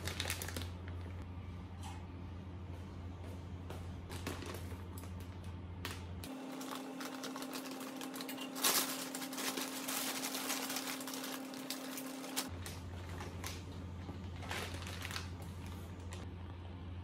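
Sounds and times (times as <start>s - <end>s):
plastic bag crinkling: 0.0s - 1.2s, 4.1s - 16.2s.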